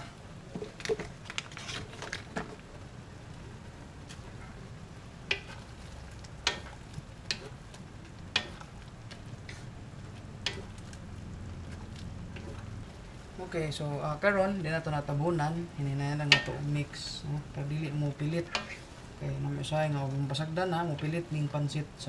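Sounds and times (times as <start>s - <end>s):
noodles stirred and tossed: 0.0s - 22.0s
noodles sizzling in a wok: 5.1s - 11.4s.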